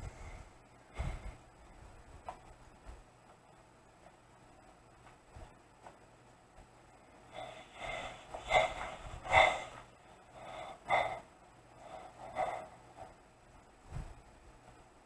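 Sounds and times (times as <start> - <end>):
person gasping and rasping breaths: 7.3 - 13.2.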